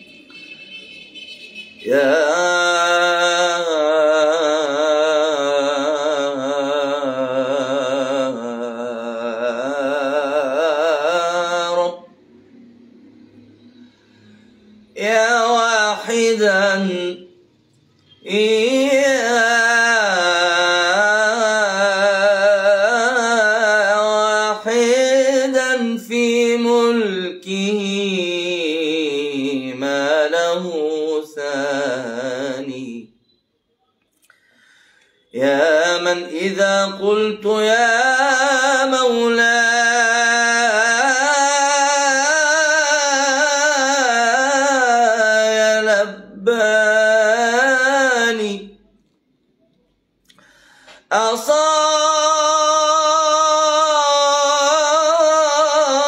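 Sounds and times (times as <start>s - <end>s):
man singing unaccompanied: 1.8s - 12.2s, 14.9s - 17.4s, 18.2s - 33.2s, 35.3s - 48.9s, 51.0s - 56.0s
singer breathing: 13.6s - 14.9s, 34.2s - 35.3s, 50.2s - 51.1s.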